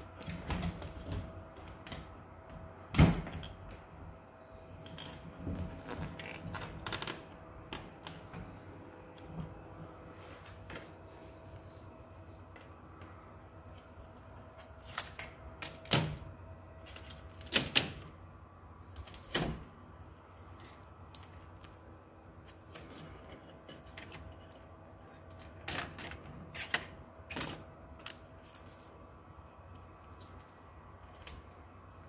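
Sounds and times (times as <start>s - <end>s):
packing tape ripping off plastic: 5.7s - 7.2s.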